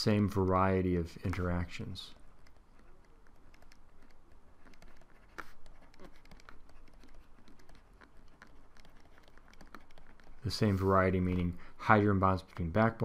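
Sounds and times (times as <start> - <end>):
stylus tapping on tablet screen: 2.2 - 10.4.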